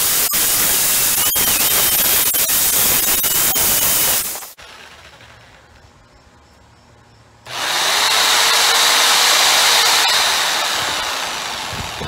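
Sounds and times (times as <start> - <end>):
jigsaw cutting wood: 7.5 - 12.0.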